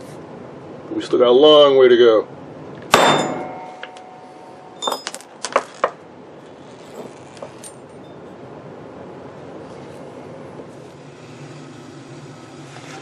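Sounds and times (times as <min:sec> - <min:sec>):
hammer blow ringing on metal: 0:02.9 - 0:05.0
metal clinks on concrete floor: 0:03.1 - 0:05.6
faint handling sounds: 0:03.8 - 0:08.0.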